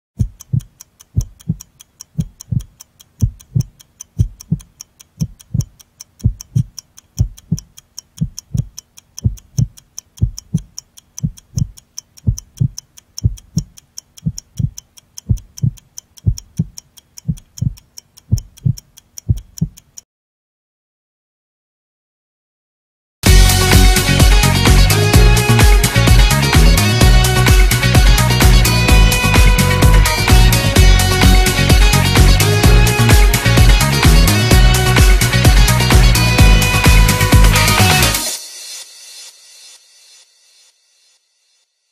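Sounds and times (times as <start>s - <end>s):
heartbeat double thump: 0.2s - 1.6s, 2.2s - 19.8s
rapid clock ticking: 0.2s - 20.0s, 23.2s - 38.4s.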